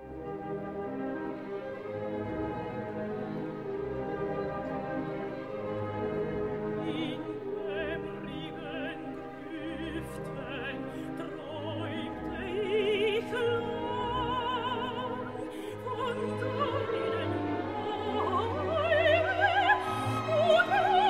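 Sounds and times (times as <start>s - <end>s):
symphony orchestra playing: 0.0s - 21.0s
soprano singing with vibrato: 6.6s - 21.0s.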